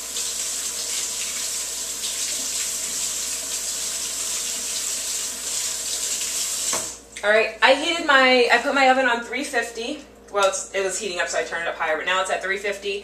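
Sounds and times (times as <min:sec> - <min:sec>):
tap running into sink: 0:06.0 - 0:07.0.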